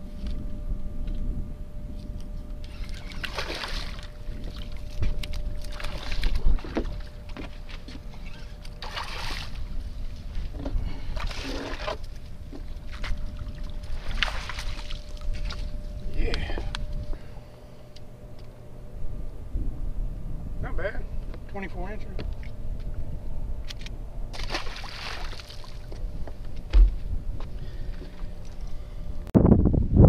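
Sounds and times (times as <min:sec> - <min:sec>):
wind rumble on microphone: 0:00.0 - 0:17.5, 0:18.2 - 0:30.0
fish splashing at the surface: 0:24.4 - 0:25.9.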